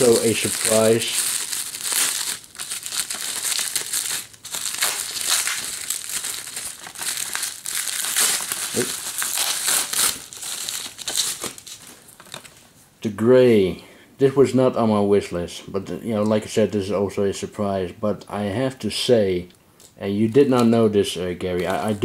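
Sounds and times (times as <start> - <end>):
bubble wrap crinkling: 0.0 - 12.6.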